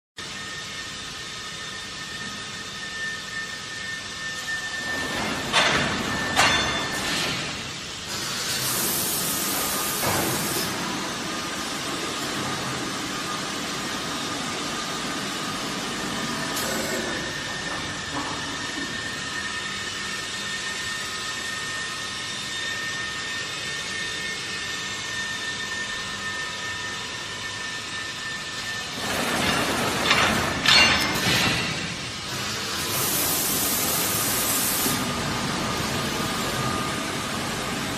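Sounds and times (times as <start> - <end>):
vacuum forming machine running: 0.2 - 37.9
machine hiss: 3.6 - 14.3, 29.0 - 35.2
sharp air hisses: 8.1 - 10.8, 32.9 - 35.0.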